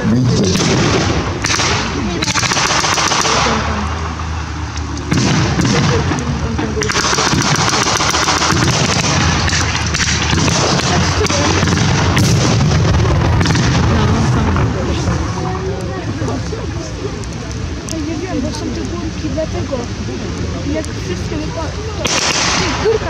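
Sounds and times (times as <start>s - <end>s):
pyrotechnic charge blast: 0.0s - 16.3s, 22.0s - 23.0s
crackle of blank gunfire: 0.4s - 3.7s, 5.0s - 14.6s, 22.0s - 23.0s.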